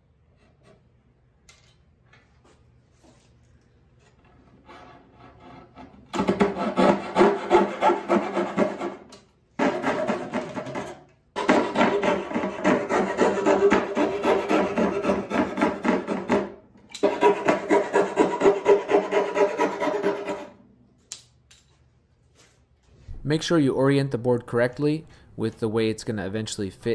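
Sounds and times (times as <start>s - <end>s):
coping saw cutting wood: 6.4s - 9.0s, 11.4s - 16.3s, 17.0s - 20.5s.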